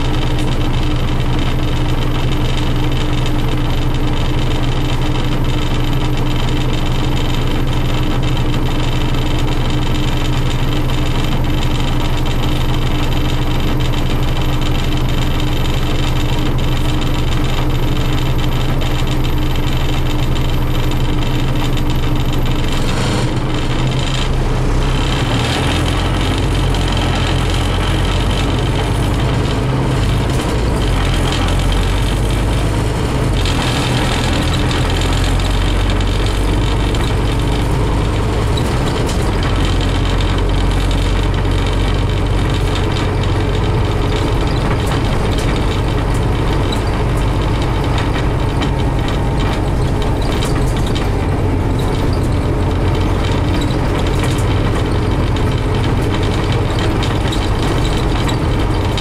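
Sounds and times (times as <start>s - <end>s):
bus engine hum: 0.0s - 59.0s
road noise: 22.2s - 59.0s.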